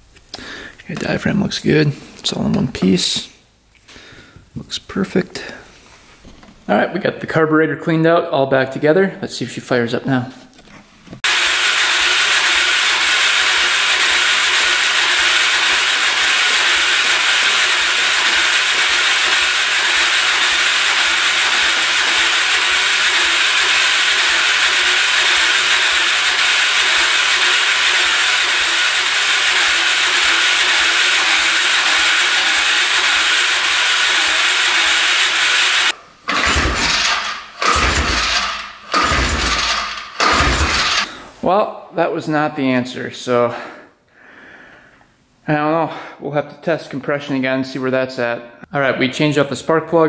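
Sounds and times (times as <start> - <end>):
electric starter cranking engine: 11.2 - 41.2.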